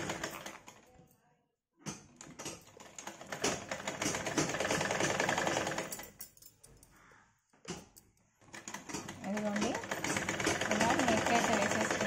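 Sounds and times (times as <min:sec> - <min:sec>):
sewing machine stitching: 0:00.0 - 0:00.8, 0:01.9 - 0:06.0, 0:08.4 - 0:12.0.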